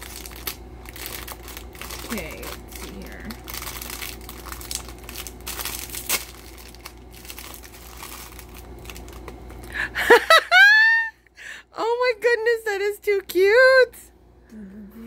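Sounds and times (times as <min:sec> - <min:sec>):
plastic wrapping crinkling: 0:00.0 - 0:09.8.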